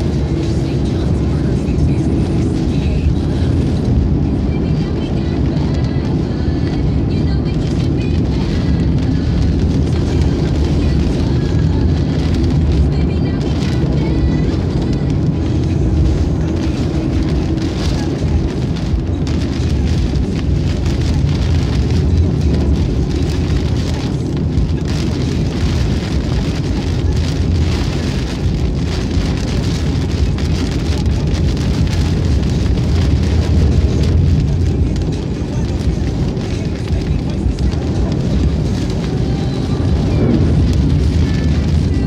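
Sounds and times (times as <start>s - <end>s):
rain hitting car: 0.0s - 42.0s
tyres and engine rumble: 0.0s - 42.0s.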